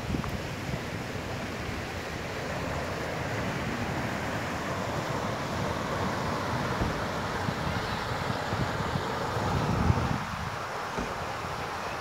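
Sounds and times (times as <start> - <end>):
stream running over stones: 0.0 - 12.0
wind buffeting microphone: 4.9 - 11.6.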